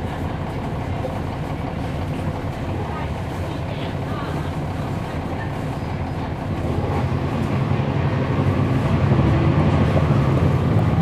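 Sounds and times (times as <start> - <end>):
bus diesel engine running: 0.0 - 11.0.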